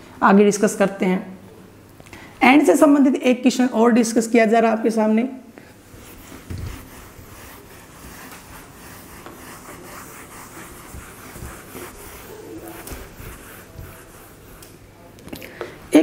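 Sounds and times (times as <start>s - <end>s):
duster rubbing on whiteboard: 5.8s - 14.8s.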